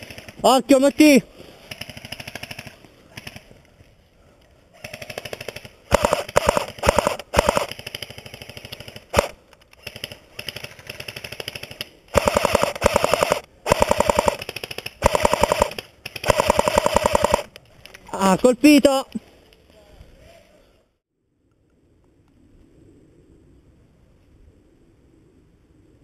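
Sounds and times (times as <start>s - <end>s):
airsoft guns firing bursts: 0.0s - 3.5s, 4.8s - 17.6s.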